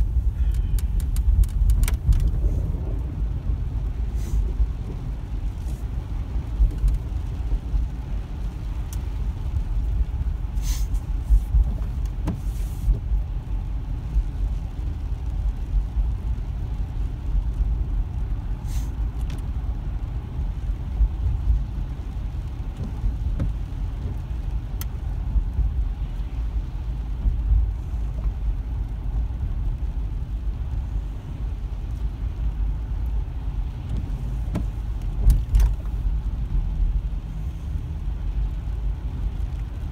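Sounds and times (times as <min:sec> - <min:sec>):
car engine and tyres rumbling: 0:00.0 - 0:39.9
faint clicks: 0:00.4 - 0:02.4.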